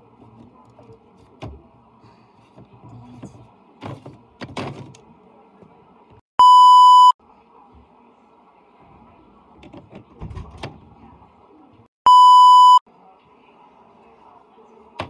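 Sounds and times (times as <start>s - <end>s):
high-pitched test-tone beep: 6.4s - 7.2s, 12.1s - 12.8s.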